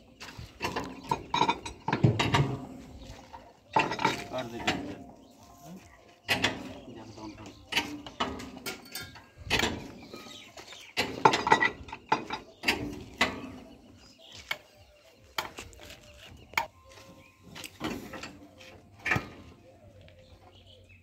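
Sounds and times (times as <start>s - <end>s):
metallic clanks of tools on metal: 0.6s - 2.6s, 3.3s - 5.0s, 6.3s - 6.8s, 7.5s - 13.6s, 17.6s - 19.5s.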